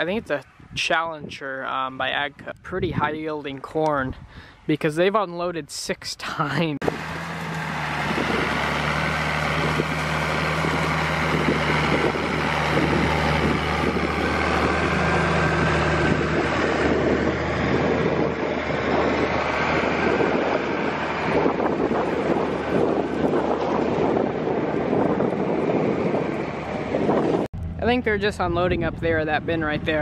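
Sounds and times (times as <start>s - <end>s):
wind buffeting microphone: 0.0s - 4.7s, 6.8s - 30.0s
tractor diesel engine: 6.8s - 30.0s.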